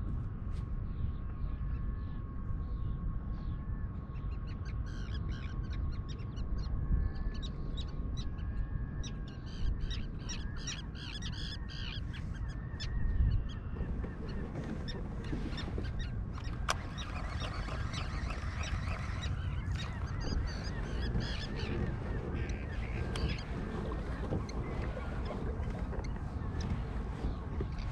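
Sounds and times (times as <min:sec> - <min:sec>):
steady low rumble: 0:00.0 - 0:27.9
flock of birds calling: 0:13.5 - 0:27.9.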